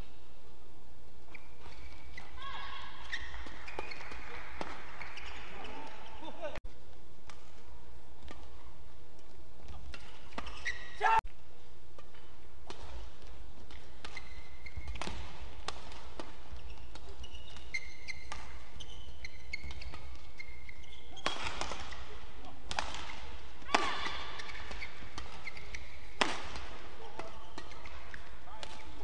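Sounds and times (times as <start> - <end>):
shoes squeaking on court: 1.2 - 6.6, 9.6 - 11.1, 12.0 - 29.0
rackets striking shuttlecock: 3.1 - 6.3, 7.2 - 10.8, 11.9 - 20.3, 21.2 - 29.0.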